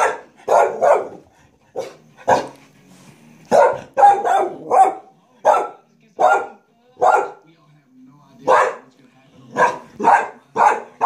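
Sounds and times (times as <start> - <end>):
dog barking: 0.0 - 2.6, 3.5 - 7.4, 8.4 - 8.9, 9.5 - 11.0.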